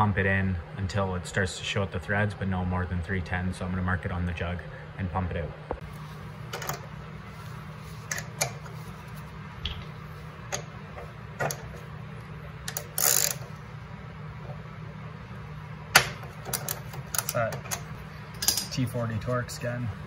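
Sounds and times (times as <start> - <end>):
steady low hum: 0.0 - 20.0
metal fasteners and tool clicking: 12.7 - 13.4, 16.4 - 17.8.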